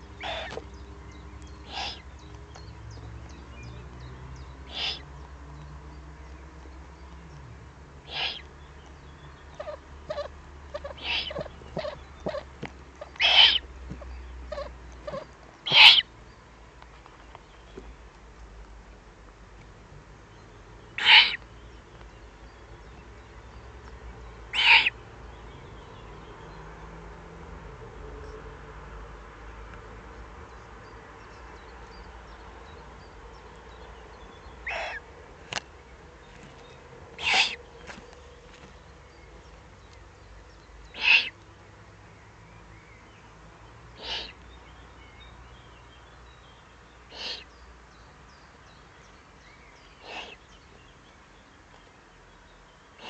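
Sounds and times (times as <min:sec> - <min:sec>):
owl chick begging calls: 0:00.2 - 0:00.7, 0:01.6 - 0:02.1, 0:04.7 - 0:05.1, 0:08.1 - 0:08.5, 0:09.5 - 0:13.7, 0:14.5 - 0:16.1, 0:21.0 - 0:21.4, 0:24.5 - 0:25.0, 0:34.6 - 0:35.0, 0:37.2 - 0:37.6, 0:40.9 - 0:41.4, 0:44.0 - 0:44.4, 0:47.1 - 0:47.5, 0:50.0 - 0:50.4.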